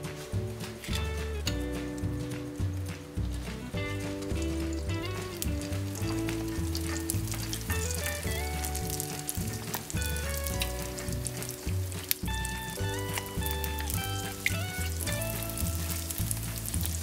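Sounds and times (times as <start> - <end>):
background music: 0.0 - 17.0
dough deep-frying in oil: 0.0 - 17.0.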